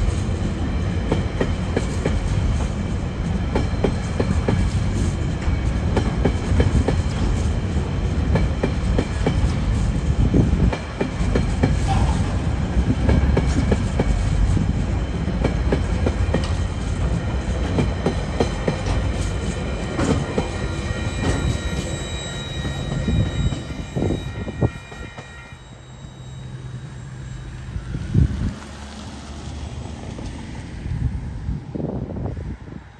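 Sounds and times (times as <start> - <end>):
train wheels clacking over joints: 10.6 - 25.6
high-pitched wheel squeal: 19.2 - 28.5.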